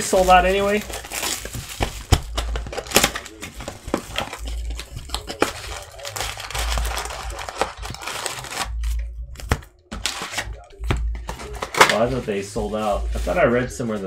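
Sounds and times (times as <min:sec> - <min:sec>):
foil wrappers crinkling: 0:00.0 - 0:10.7.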